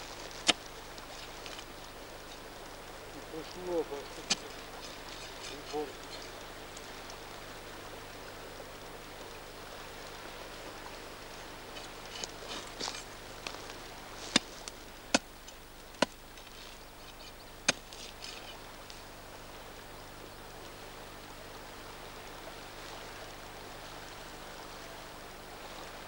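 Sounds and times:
steady hiss: 0:00.0 - 0:26.0
metal bar striking stony ground: 0:04.2 - 0:05.8, 0:14.2 - 0:18.6.

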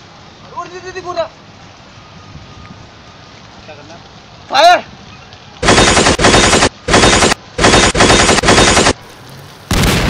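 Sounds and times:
machine-gun bursts: 0:05.6 - 0:09.0.

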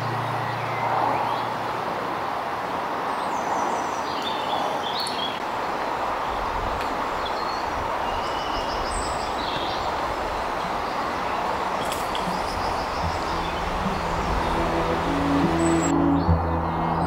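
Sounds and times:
steady rushing noise: 0:05.4 - 0:17.0
small birds chirping: 0:07.2 - 0:16.6
low rumble: 0:12.2 - 0:17.0.

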